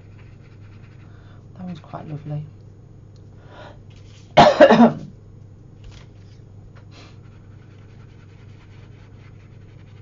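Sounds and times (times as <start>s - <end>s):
speech: 1.6s - 2.6s.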